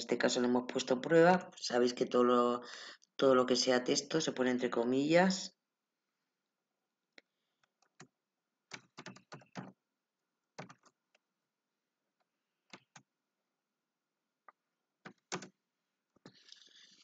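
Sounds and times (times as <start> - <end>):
keyboard keys clicking: 8.7 - 9.7, 10.6 - 10.9, 15.0 - 15.5.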